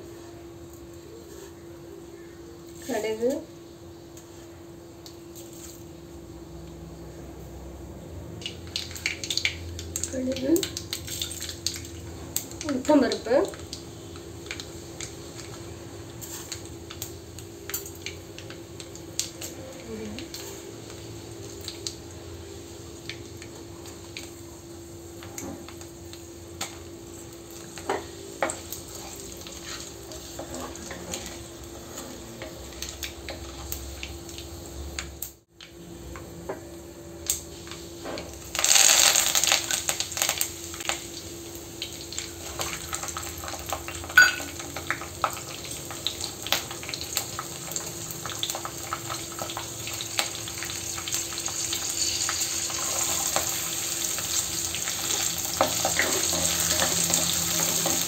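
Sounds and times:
food sizzling in oil: 0.0s - 58.0s
induction cooktop hum: 0.0s - 58.0s
seeds crackling in hot oil: 0.0s - 58.0s.

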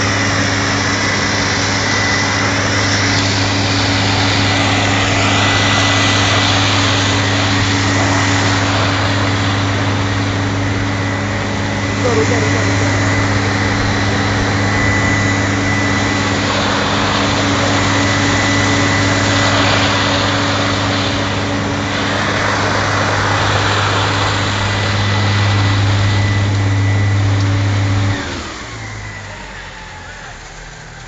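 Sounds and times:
truck diesel engine humming: 0.0s - 19.4s
loud rushing noise: 0.0s - 29.2s.

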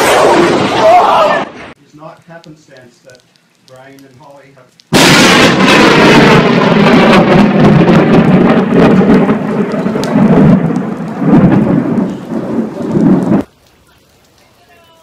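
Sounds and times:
loud crackling thunder: 0.0s - 1.7s, 4.9s - 13.5s
rain falling: 0.8s - 15.0s.

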